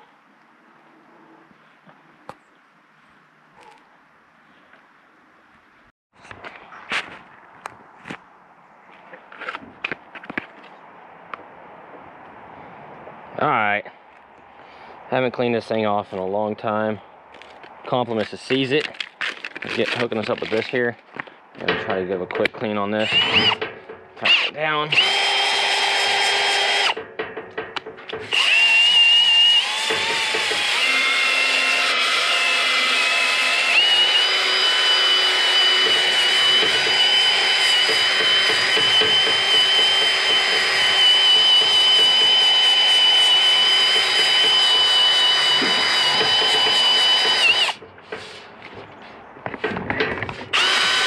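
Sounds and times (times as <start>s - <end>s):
cordless drill motor whine: 24.3s - 27.0s, 28.3s - 47.8s, 50.5s - 51.0s.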